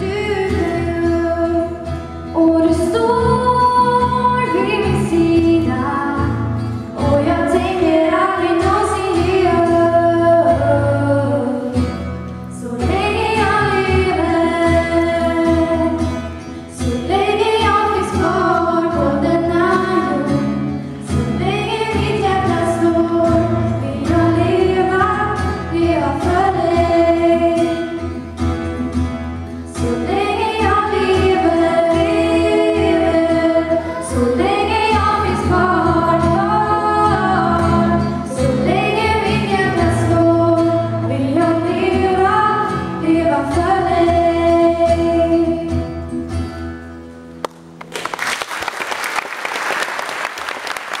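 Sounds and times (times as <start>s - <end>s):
girls singing a duet: 0.0s - 28.2s, 29.6s - 45.9s
applause: 47.4s - 51.0s.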